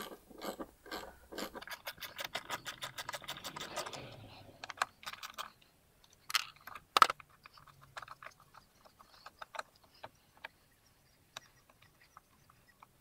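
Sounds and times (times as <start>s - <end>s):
plastic clicks and rattles: 0.4s - 10.6s.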